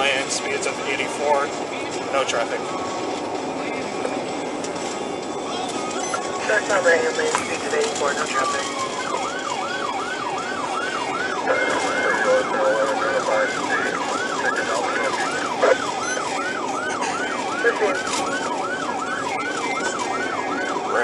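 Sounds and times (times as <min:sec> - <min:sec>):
road noise: 0:00.0 - 0:21.0
police siren yelping: 0:05.3 - 0:21.0.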